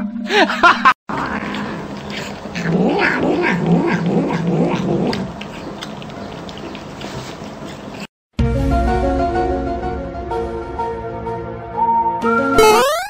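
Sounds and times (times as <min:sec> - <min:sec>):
cat growling and yowling: 0:01.1 - 0:05.3.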